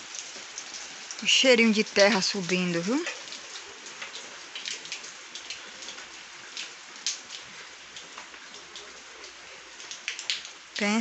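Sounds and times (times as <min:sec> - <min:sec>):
light rain hissing: 0:00.0 - 0:11.0
raindrops ticking: 0:00.0 - 0:11.0.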